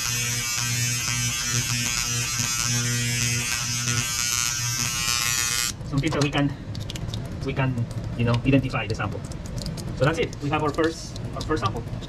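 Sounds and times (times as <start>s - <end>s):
electric engraver buzzing: 0.0s - 5.8s
lower buzz against surface: 0.0s - 5.8s.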